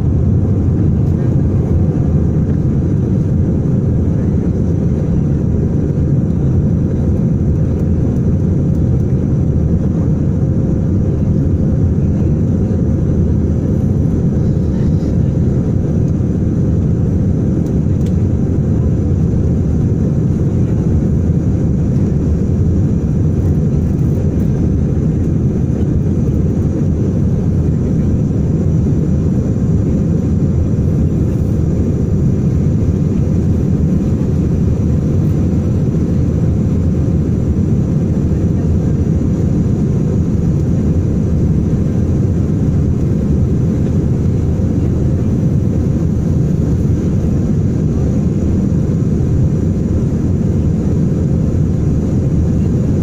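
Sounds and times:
aircraft cabin engine and airflow rush: 0.0 - 53.0.

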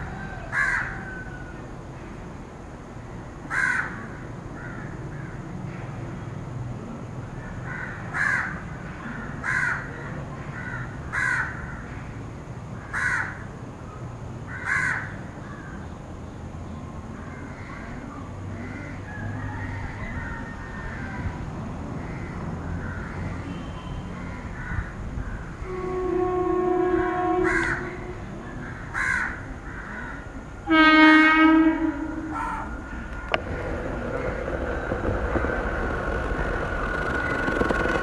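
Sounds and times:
crows cawing: 0.2 - 1.5, 3.5 - 5.4, 7.6 - 8.6, 9.4 - 9.9, 10.6 - 11.9, 12.9 - 13.4, 14.5 - 15.8, 22.0 - 23.3, 24.2 - 25.5, 27.4 - 28.0, 28.6 - 30.3, 32.3 - 33.4.

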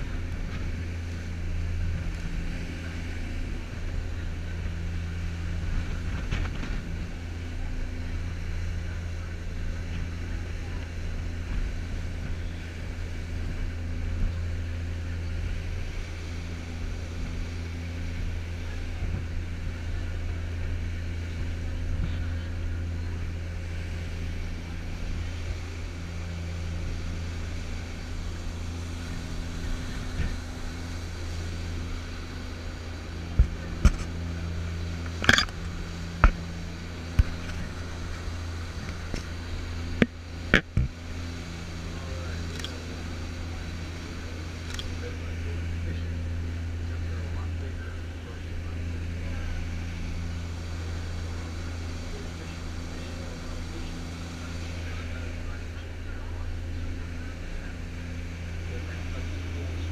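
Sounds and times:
boat engines droning: 0.0 - 59.9
churning wake: 0.0 - 59.9.

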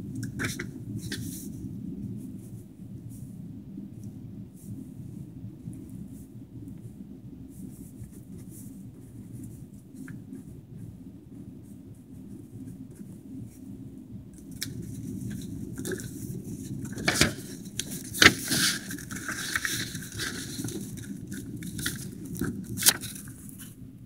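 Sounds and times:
paper rustling and crackling: 0.2 - 1.6, 11.6 - 23.8
paper snapping: 16.8 - 23.4.

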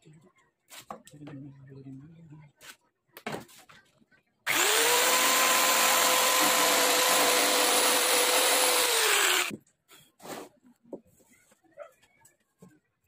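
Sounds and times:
power tool motor whining: 4.5 - 9.5.

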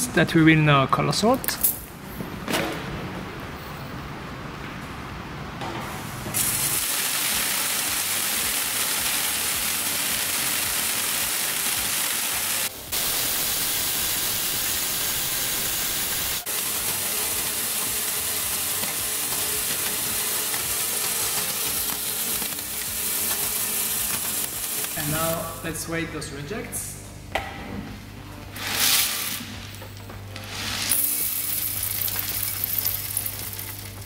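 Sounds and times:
beans pattering into bins: 30.4 - 34.0.

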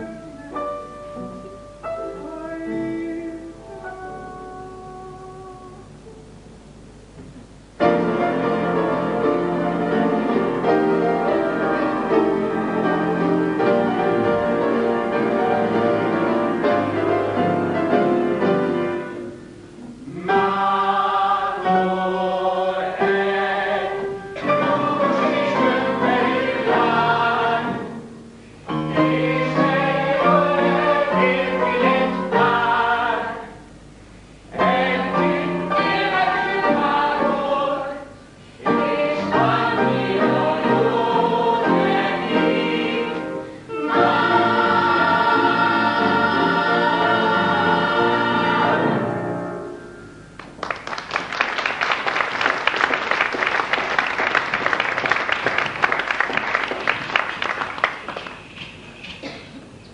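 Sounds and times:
audience applause: 50.4 - 58.6.

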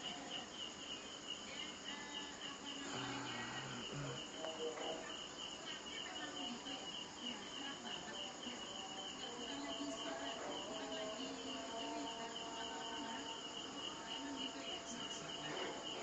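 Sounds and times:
cricket chirping: 0.0 - 16.0.

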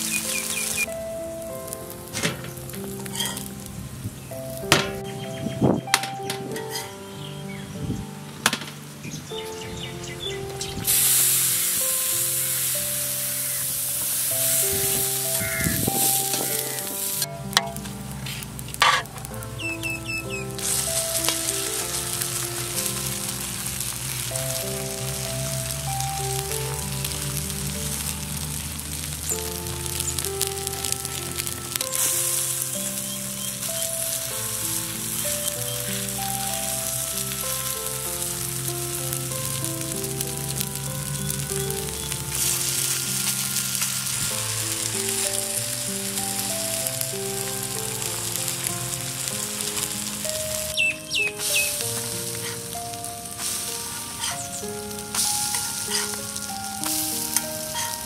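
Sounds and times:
omelette sizzling in a pan: 0.0 - 0.9, 1.5 - 4.8, 10.8 - 58.0
soft background music: 0.0 - 58.0
spatula scraping a pan: 3.1 - 3.5, 6.6 - 6.9, 15.4 - 19.1, 54.2 - 54.5, 55.2 - 56.2.

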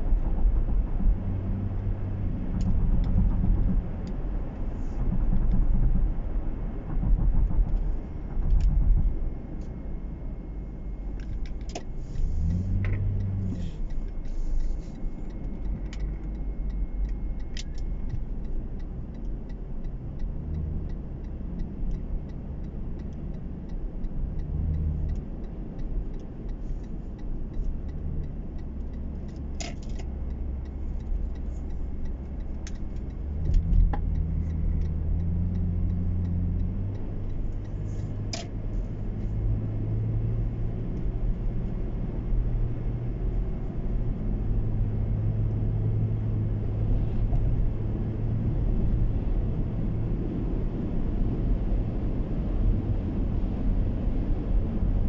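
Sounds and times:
car engine and road rumble: 0.0 - 55.0.

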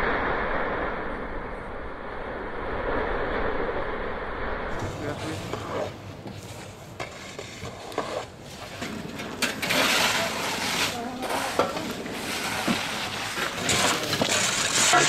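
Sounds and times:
shovel scraping ash on roof tiles: 4.8 - 15.0.

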